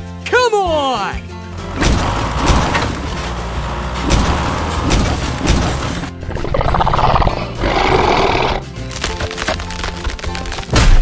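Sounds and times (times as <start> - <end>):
animal roar sound effect: 6.2 - 8.7.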